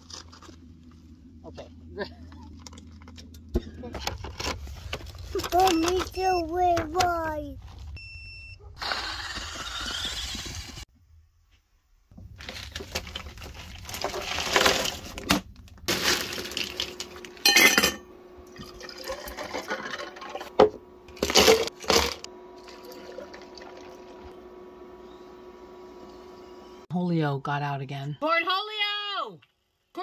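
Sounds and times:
steady hum: 0:00.0 - 0:10.9, 0:12.2 - 0:26.9
liquid pouring into cups: 0:18.5 - 0:20.4, 0:22.6 - 0:24.4.

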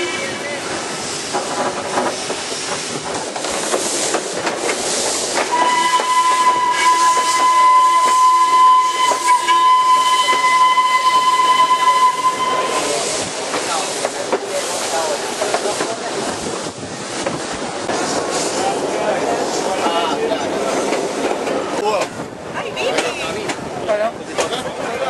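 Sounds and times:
moving train running noise: 0:00.0 - 0:25.0
steam locomotive whistle: 0:05.5 - 0:13.2.

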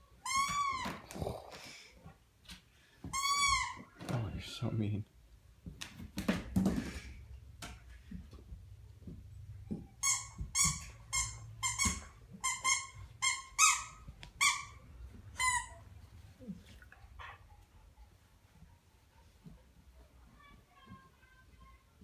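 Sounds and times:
squeaky toy squeaks: 0:03.1 - 0:03.8, 0:10.0 - 0:15.8.

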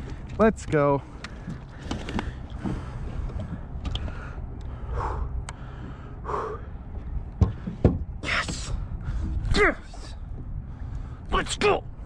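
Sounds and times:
light clicks and knocks of gear: 0:00.0 - 0:04.8
wind rumbling on microphone: 0:00.0 - 0:12.0
water lapping against kayak hull: 0:01.0 - 0:09.5.

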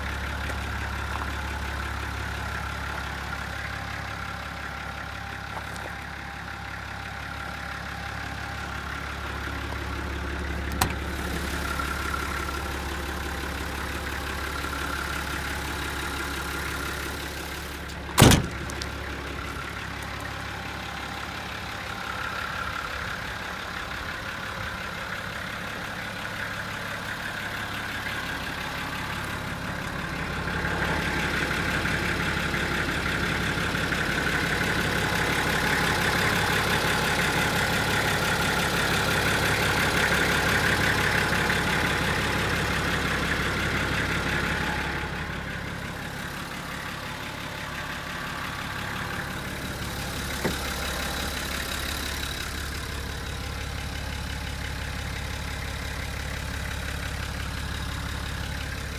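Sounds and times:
diesel engine idling: 0:00.0 - 0:58.9.

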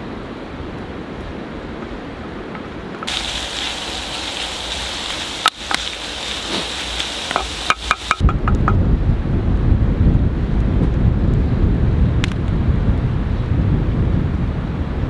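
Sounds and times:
river noise: 0:00.0 - 0:08.8
low wind: 0:00.0 - 0:15.0
meat sizzling in a pot: 0:03.1 - 0:08.3.

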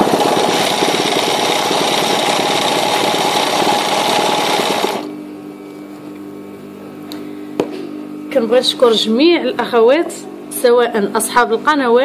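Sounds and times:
sewing machine stitching: 0:00.0 - 0:05.1.

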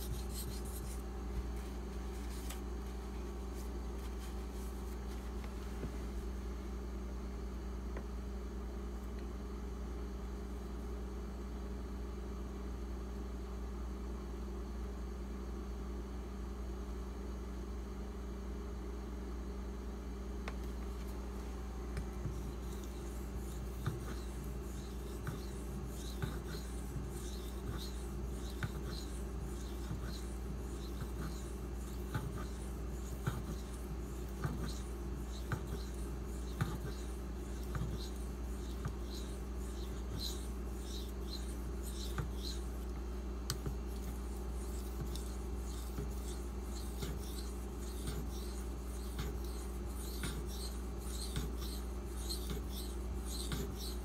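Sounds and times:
knife blade scraping on whetstone: 0:22.4 - 0:42.6.

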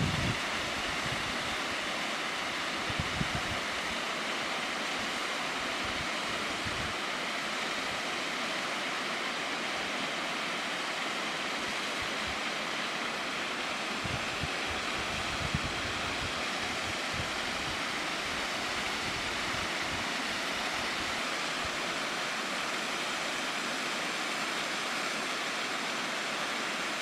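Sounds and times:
wind buffeting microphone: 0:00.0 - 0:01.3, 0:02.9 - 0:03.6, 0:14.0 - 0:17.8
waterfall rushing over rock: 0:00.0 - 0:27.0.

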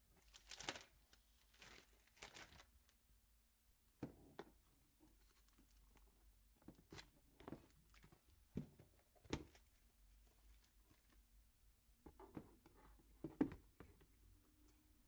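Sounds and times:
rustling of binders and paper files: 0:00.1 - 0:03.0, 0:04.0 - 0:15.0
soft knocks of plastic binders: 0:12.0 - 0:14.1.

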